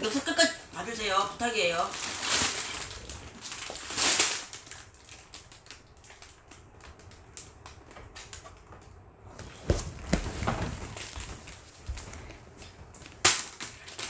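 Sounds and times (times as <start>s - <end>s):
plastic bag crinkling: 0.0s - 8.7s.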